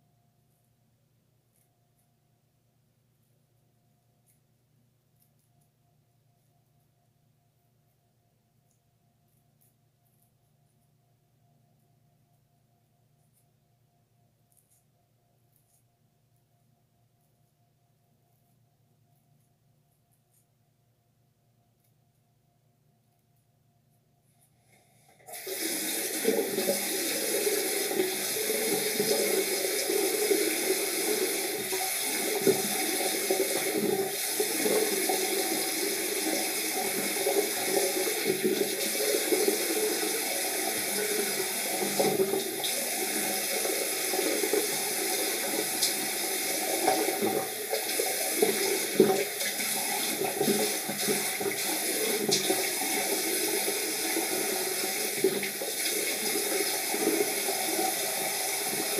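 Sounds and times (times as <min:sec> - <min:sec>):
tap water running into a sink: 0:25.3 - 0:58.9.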